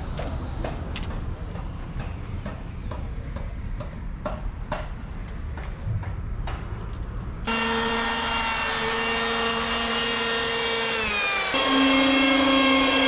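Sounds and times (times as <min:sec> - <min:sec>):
electric hand planer whining: 0:07.5 - 0:13.0.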